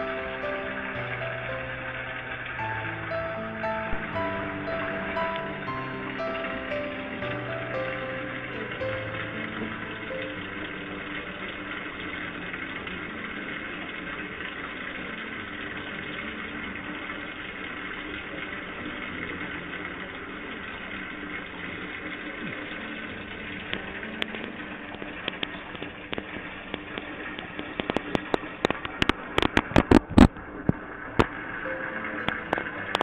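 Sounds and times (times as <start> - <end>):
sharp crackling clicks: 23.7 - 31.4, 32.2 - 33.0.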